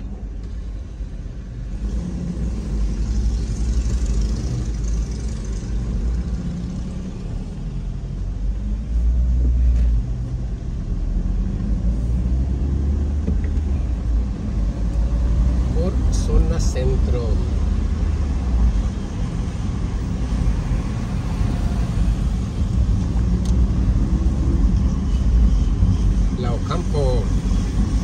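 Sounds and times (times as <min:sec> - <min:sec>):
car engine and tyre rumble: 0:00.0 - 0:28.0.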